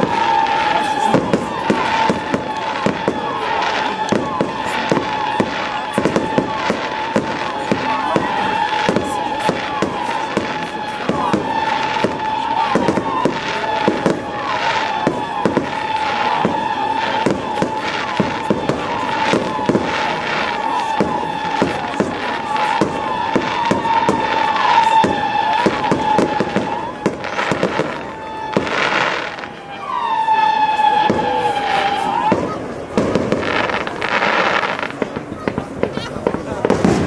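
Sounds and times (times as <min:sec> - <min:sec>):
firework hissing: 0:00.0 - 0:37.0.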